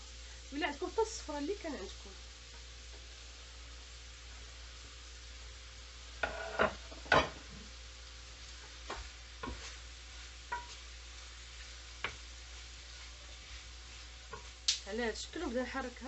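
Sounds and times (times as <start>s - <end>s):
food sizzling in a skillet: 0.0s - 16.0s
wooden spatula scraping a pan: 6.2s - 7.5s, 8.4s - 14.6s.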